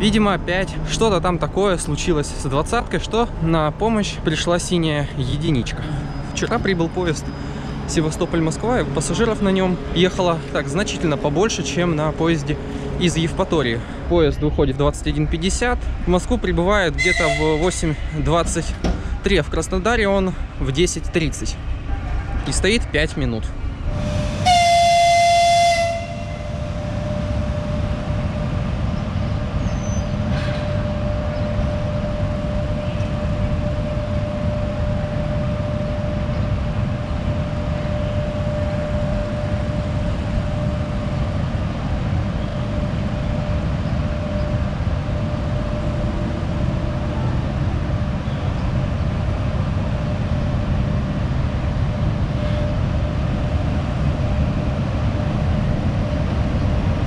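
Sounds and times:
train rumble: 0.0 - 57.0
locomotive horn blast: 16.9 - 18.2, 23.9 - 27.8.

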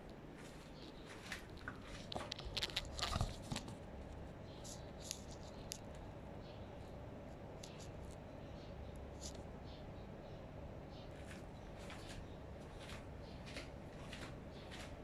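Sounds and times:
crunchy clicks and knocks: 0.8 - 6.1.

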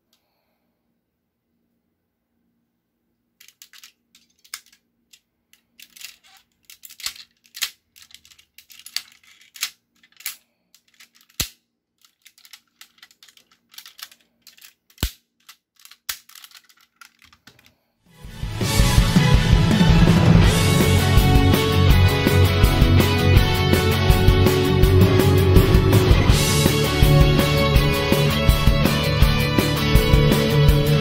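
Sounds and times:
plastic toy parts clicking and snapping: 3.4 - 17.8
music: 18.1 - 31.0.

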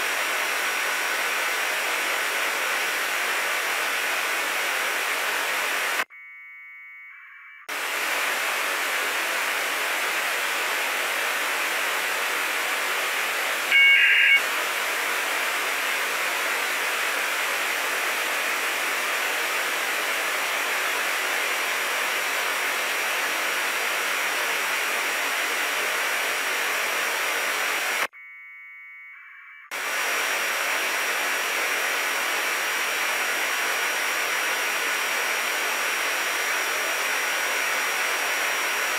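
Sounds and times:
radio receiver hiss: 7.7 - 28.1
loud tone burst: 13.2 - 14.5
data tone bursts: 13.7 - 14.4, 28.1 - 29.7.

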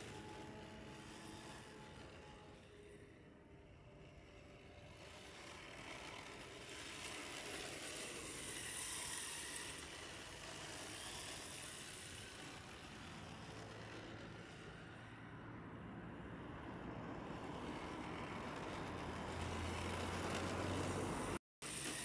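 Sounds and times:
rc car motor whine: 0.0 - 22.0
tyres sliding on asphalt: 4.7 - 15.4, 16.2 - 22.0.

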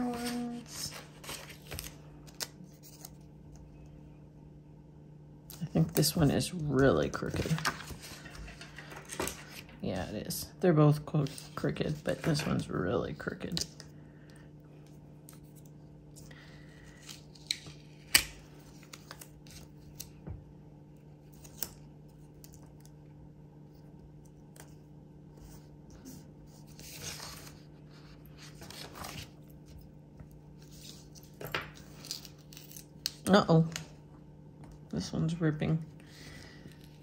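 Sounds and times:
soft paper rustles: 0.0 - 3.9, 7.0 - 10.1, 23.7 - 32.9.

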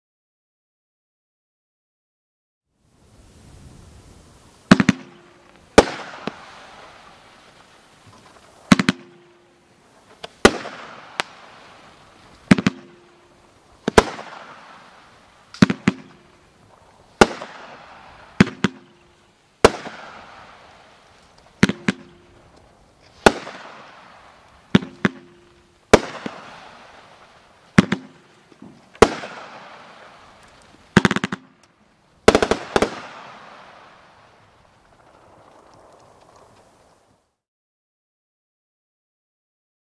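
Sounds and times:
firework bangs with crackling hiss: 3.1 - 37.2.

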